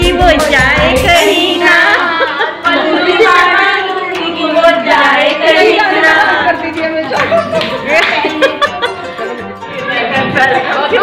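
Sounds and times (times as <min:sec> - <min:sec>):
women singing and calling out: 0:00.0 - 0:08.7
hand claps: 0:07.1 - 0:08.6.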